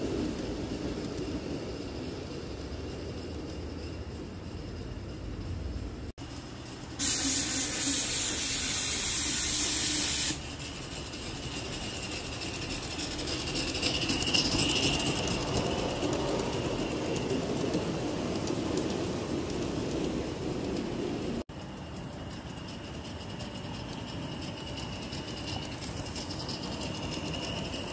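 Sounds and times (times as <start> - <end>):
train wheels clattering on rails: 0.0 - 27.9
steam hiss: 6.8 - 10.8.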